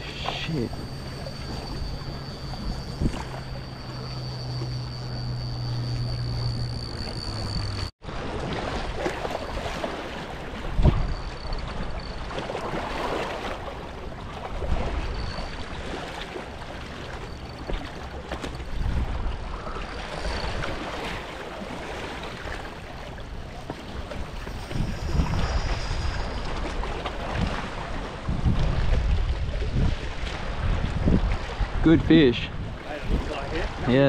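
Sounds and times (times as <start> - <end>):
steady low hum: 0.0 - 7.9
river water: 0.0 - 34.0
wind: 0.0 - 34.0.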